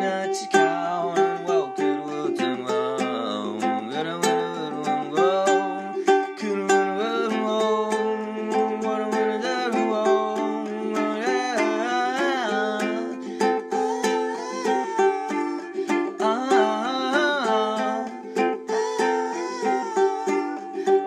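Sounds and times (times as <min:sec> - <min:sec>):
ukulele strumming: 0:00.0 - 0:21.0.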